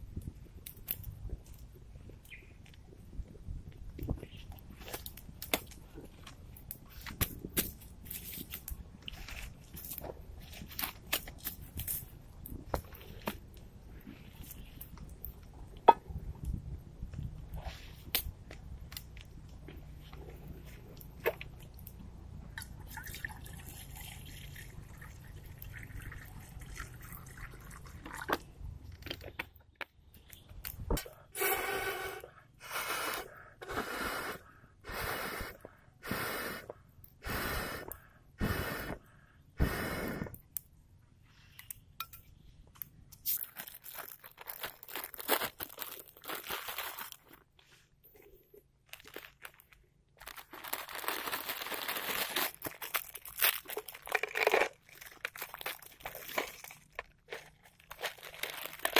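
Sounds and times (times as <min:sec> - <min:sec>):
breath puffs through pipe: 0:31.2 - 0:40.4
plastic packet crinkling: 0:43.3 - 0:47.5, 0:48.8 - 0:58.9.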